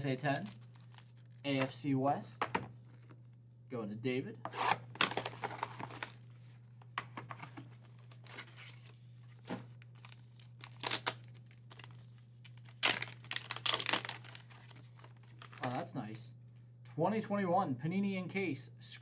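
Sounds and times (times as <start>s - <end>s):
steady low hum: 0.0s - 19.0s
plastic packaging crinkling: 0.2s - 1.7s, 5.0s - 6.6s, 7.8s - 15.8s
packaging tearing: 0.3s - 1.4s, 4.6s - 6.3s, 10.0s - 15.7s.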